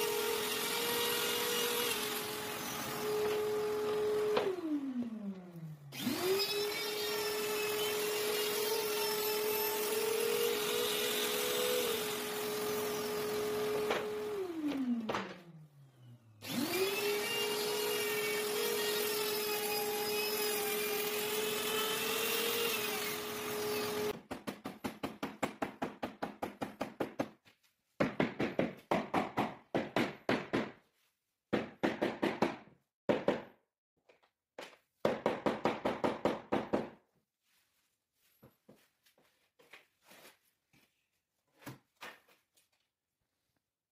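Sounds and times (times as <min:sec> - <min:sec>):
trim router whining: 0:00.0 - 0:24.2.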